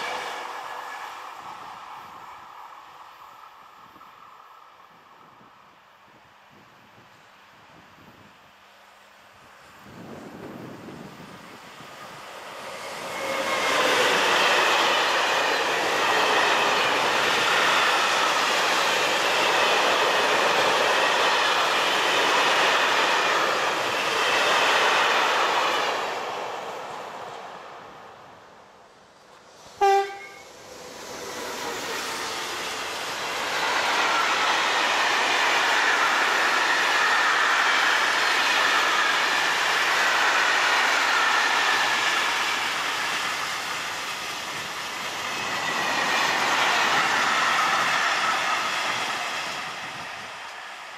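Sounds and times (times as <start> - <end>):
freight train rushing rumble: 0.0 - 4.2, 9.6 - 50.9
squealing train wheels: 0.0 - 4.8, 9.9 - 26.3, 29.7 - 50.9
train horn blast: 29.8 - 30.6.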